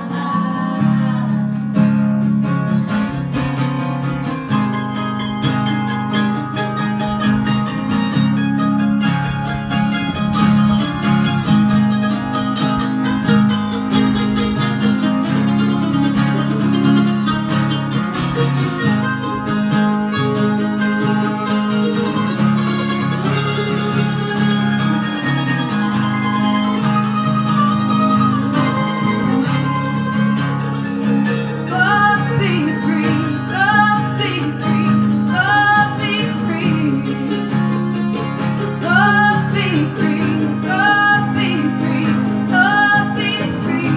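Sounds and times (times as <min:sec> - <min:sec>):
woman singing: 0:00.0 - 0:01.8, 0:31.6 - 0:37.6, 0:38.8 - 0:43.9
acoustic string band playing: 0:00.0 - 0:43.9.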